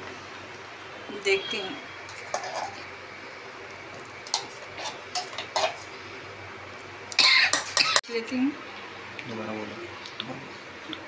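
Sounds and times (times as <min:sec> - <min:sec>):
spoon scraping steel jar: 0:02.1 - 0:02.8.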